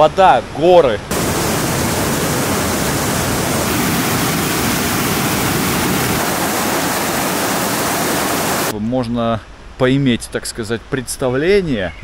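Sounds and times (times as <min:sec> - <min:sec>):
river rushing over rocks: 0:01.1 - 0:08.7.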